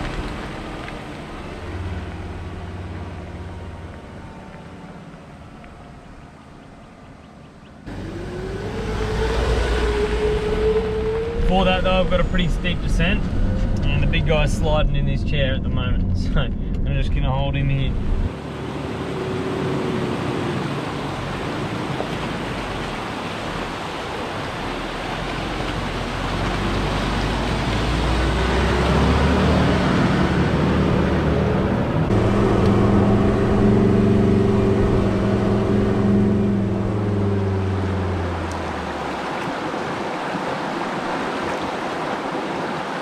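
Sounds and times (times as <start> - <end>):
creek water rushing over rocks: 18.3 - 43.0
vehicle engine running: 30.3 - 39.1.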